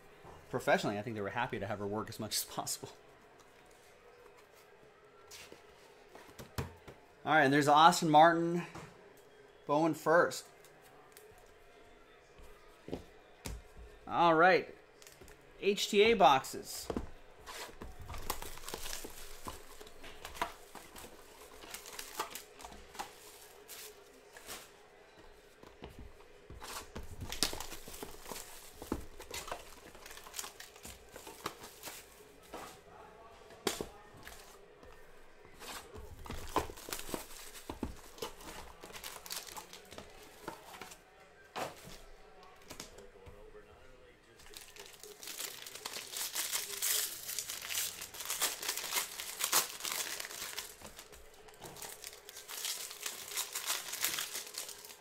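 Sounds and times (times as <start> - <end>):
wrapping tearing and crinkling: 17.5 - 24.7, 36.4 - 39.9, 44.5 - 55.0.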